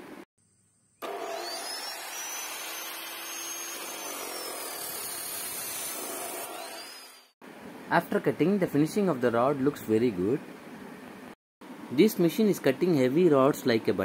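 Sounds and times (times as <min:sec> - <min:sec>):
cut-off saw grinding metal: 0:01.0 - 0:07.4.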